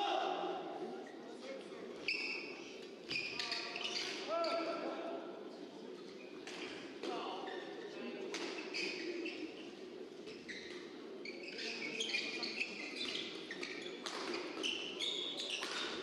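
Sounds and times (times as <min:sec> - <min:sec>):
murmur of hall: 0:00.0 - 0:16.0
shoes squeaking on court: 0:02.0 - 0:04.7, 0:06.0 - 0:16.0.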